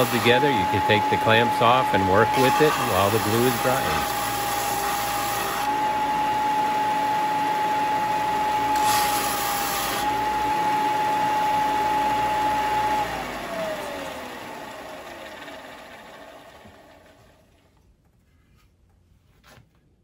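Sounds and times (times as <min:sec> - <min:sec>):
wood sanding hiss: 0:00.0 - 0:05.7
motor winding down: 0:00.0 - 0:06.0
belt sander whining: 0:00.0 - 0:17.5.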